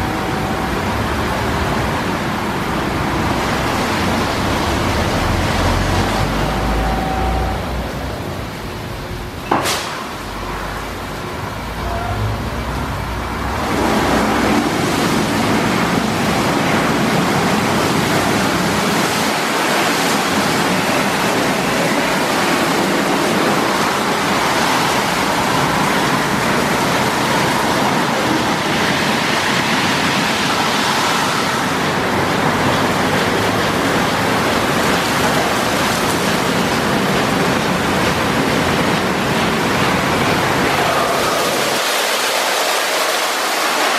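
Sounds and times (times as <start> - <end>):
car wash brushes and water spray: 12.6 - 43.9.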